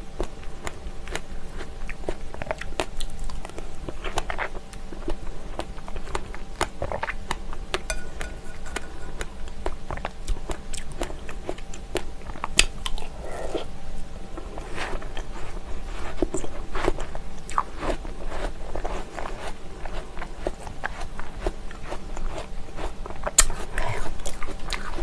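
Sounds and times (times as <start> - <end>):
spoon clicking against glass: 7.9 - 9.2
yogurt squelching: 14.3 - 21.6.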